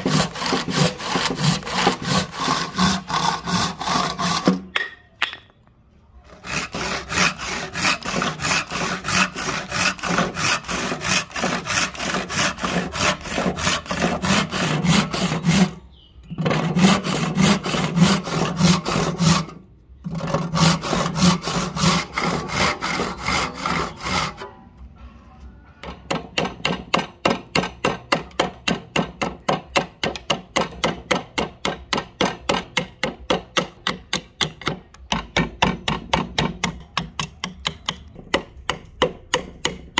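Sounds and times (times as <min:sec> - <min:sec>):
handsaw rasping through wood: 0:00.0 - 0:04.7, 0:06.3 - 0:15.8, 0:16.4 - 0:24.4.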